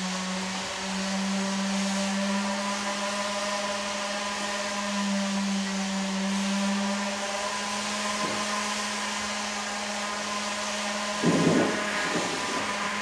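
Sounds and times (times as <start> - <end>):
machine humming: 0.0 - 13.0.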